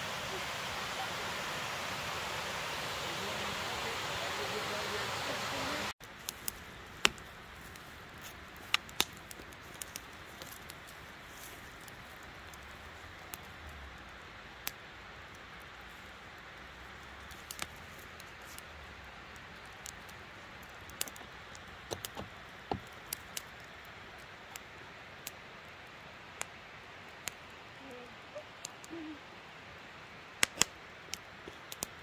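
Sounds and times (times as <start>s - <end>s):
outdoor hiss: 0.0s - 32.0s
wood fire crackling and popping: 6.0s - 27.6s, 28.3s - 29.2s, 29.8s - 32.0s.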